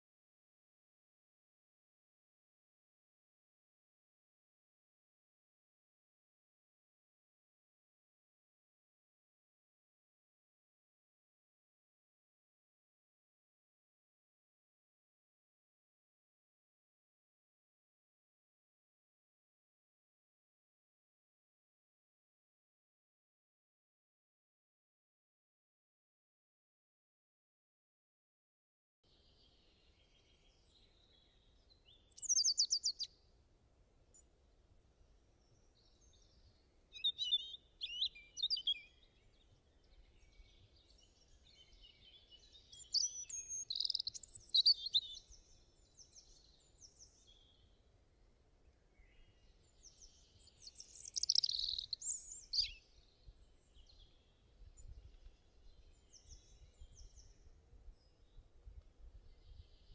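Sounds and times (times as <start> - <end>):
birds chirping and trilling: 29.2 - 33.1, 35.4 - 47.8, 48.8 - 58.4.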